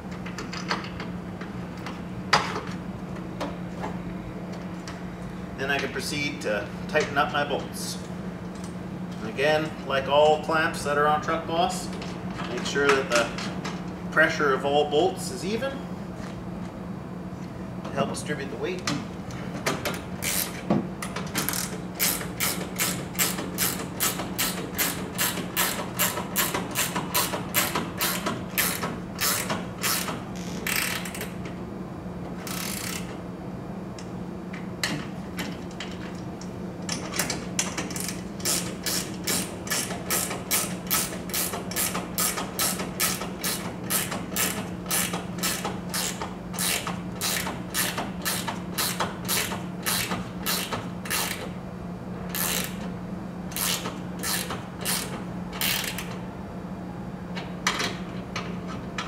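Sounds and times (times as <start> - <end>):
ratchet wrench clicking: 20.2 - 20.6, 21.4 - 31.3, 32.4 - 33.1, 37.9 - 51.5, 52.3 - 52.8, 53.5 - 56.2.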